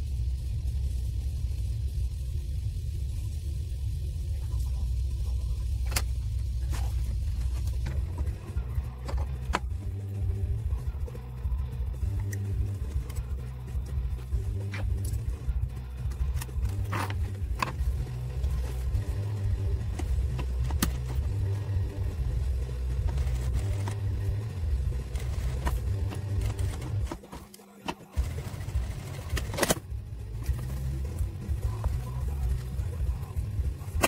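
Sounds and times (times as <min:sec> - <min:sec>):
sewing machine running: 0:16.3 - 0:27.4, 0:28.1 - 0:31.2.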